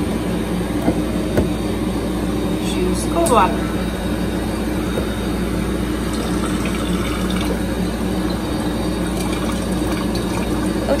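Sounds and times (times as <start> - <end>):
steady low hum: 0.0 - 11.0
water streaming into glass carafe: 4.8 - 11.0.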